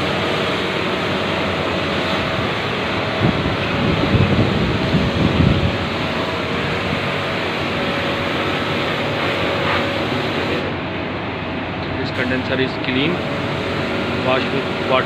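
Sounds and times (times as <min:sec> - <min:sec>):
faint machine hum: 0:00.0 - 0:15.0
wind buffeting microphone: 0:02.2 - 0:07.9.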